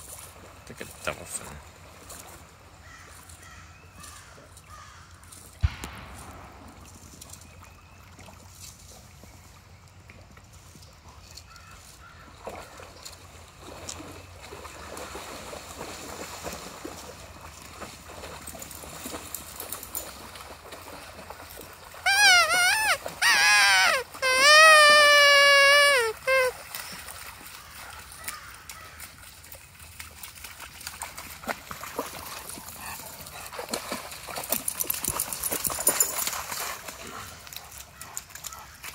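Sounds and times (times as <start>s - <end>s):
dogs splashing in water: 12.1s - 38.9s
stream rushing: 22.0s - 26.6s.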